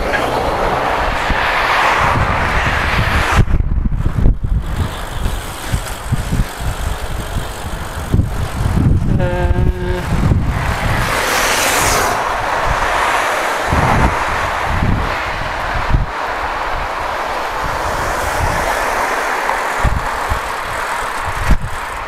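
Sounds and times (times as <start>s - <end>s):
street traffic: 0.0s - 22.0s
wind buffeting microphone: 0.0s - 22.0s
short pitched tone: 9.1s - 10.1s.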